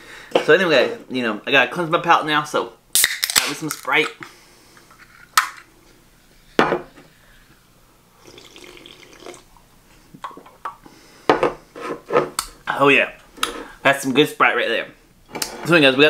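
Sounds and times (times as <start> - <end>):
person sipping and swallowing: 8.2 - 9.6.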